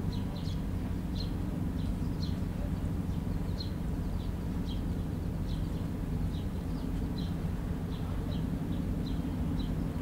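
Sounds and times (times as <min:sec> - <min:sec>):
bird chirping: 0:00.0 - 0:10.0
low machine hum: 0:00.0 - 0:10.0.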